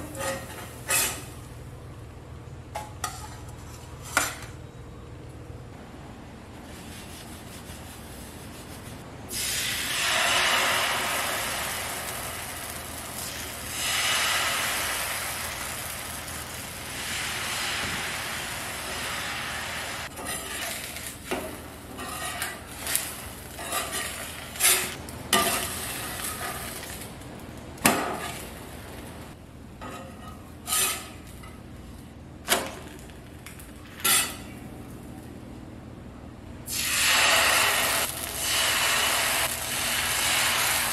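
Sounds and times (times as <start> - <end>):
sizzling on hot pan: 9.3 - 20.1, 36.7 - 40.9.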